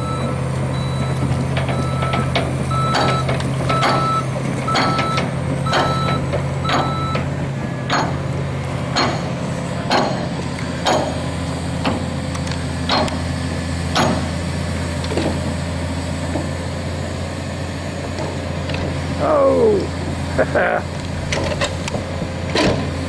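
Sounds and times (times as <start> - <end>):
excavator engine running: 0.0 - 23.0.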